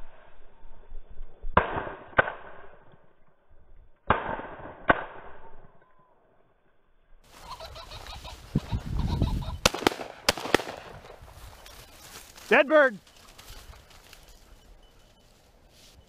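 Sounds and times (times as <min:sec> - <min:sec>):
shotgun shots: 0:04.1 - 0:05.3, 0:09.6 - 0:11.2.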